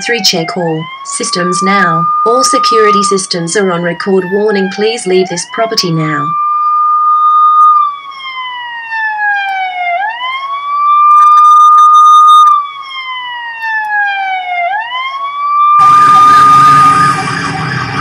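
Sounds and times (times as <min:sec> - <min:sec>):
electronic siren wailing: 0:00.0 - 0:18.0
fire engine siren warbling: 0:00.0 - 0:18.0
road traffic noise: 0:12.6 - 0:18.0.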